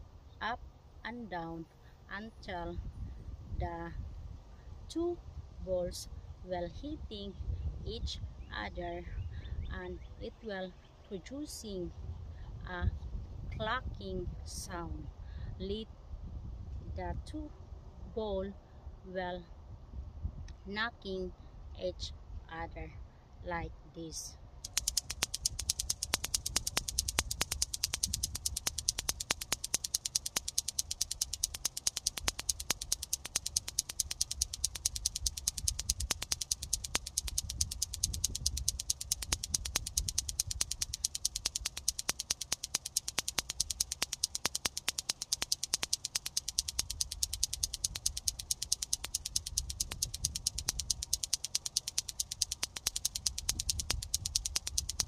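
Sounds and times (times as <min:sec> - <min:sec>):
plastic clackers toy clacking: 0:24.6 - 0:55.0.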